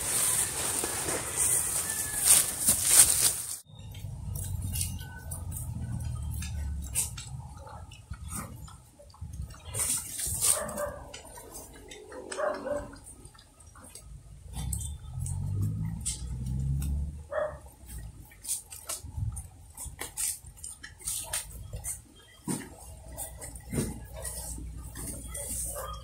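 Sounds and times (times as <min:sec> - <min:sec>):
pigs chewing leaves: 0:00.0 - 0:26.0
pigs grunting: 0:05.7 - 0:17.7.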